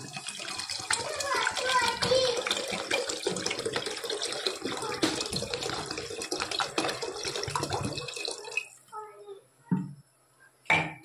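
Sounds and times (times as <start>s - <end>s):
water splashing into liquid: 0.0s - 8.8s
water pouring into a pot: 0.0s - 8.9s.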